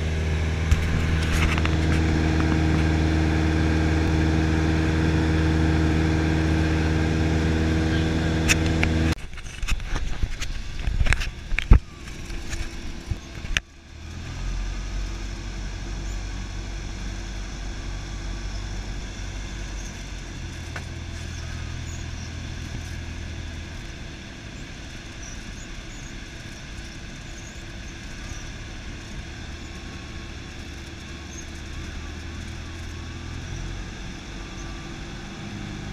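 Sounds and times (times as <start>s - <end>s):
aircraft engine and propeller droning: 0.0s - 35.9s
sharp clicks and knocks: 0.6s - 3.0s.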